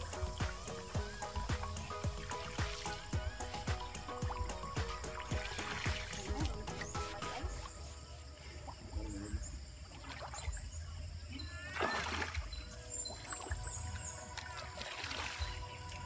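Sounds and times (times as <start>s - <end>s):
pond water sloshing and splashing: 0.0s - 16.0s.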